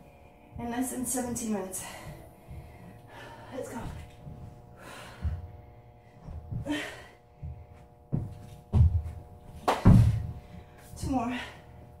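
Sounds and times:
woman breathing hard: 1.8 - 8.0
thumps on carpeted floor: 6.2 - 6.8, 7.4 - 11.2.

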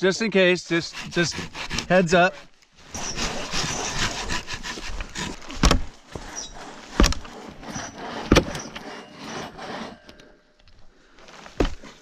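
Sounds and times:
crosscut saw rasping through log: 0.1 - 10.3
sharp knocks: 5.2 - 8.7.

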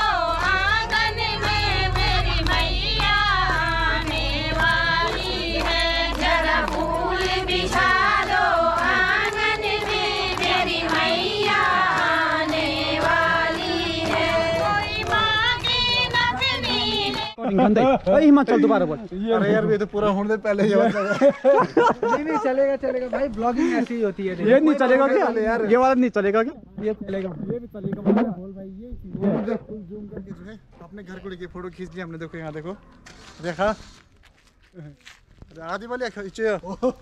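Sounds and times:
rhythmic hand-clapping: 0.0 - 17.4
women singing devotional song: 0.0 - 17.4.

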